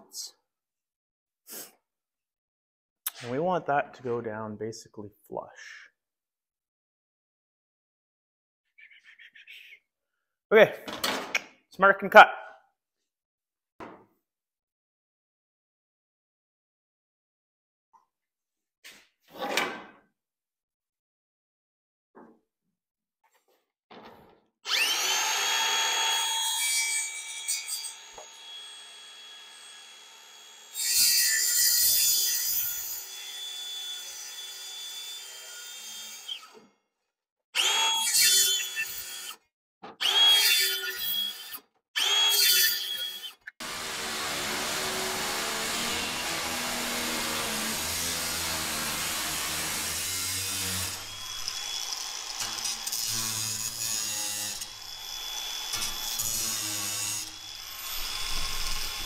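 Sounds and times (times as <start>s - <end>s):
angle grinder on metal: 24.7s - 36.5s, 37.6s - 39.4s, 40.0s - 59.0s
circular saw cutting aluminum: 24.7s - 36.5s, 37.6s - 39.4s, 40.0s - 59.0s.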